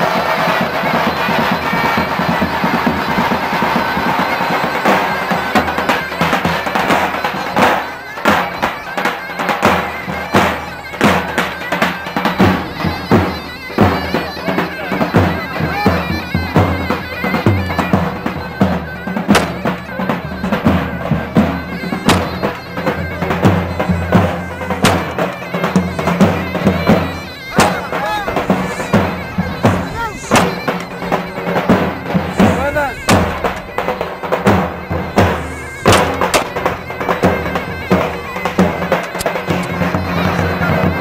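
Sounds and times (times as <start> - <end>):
reedy wind instrument melody: 0.0 - 41.0.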